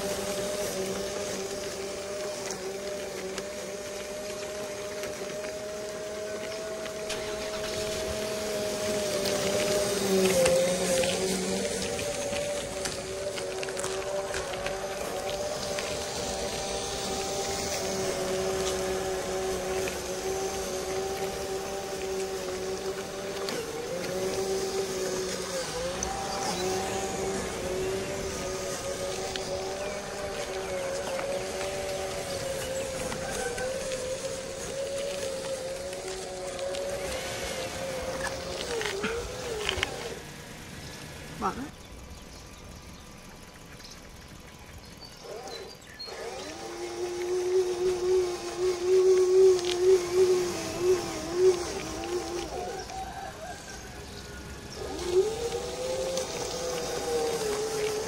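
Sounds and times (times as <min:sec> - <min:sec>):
hiss: 0:00.0 - 0:41.6
toy truck electric motor whine: 0:00.0 - 0:58.0.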